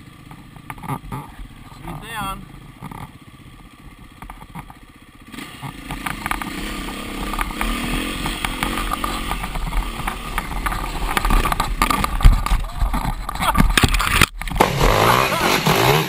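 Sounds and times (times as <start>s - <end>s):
dirt bike engine revving: 4.4s - 16.0s
scrub and stones knocking bike: 5.6s - 15.0s.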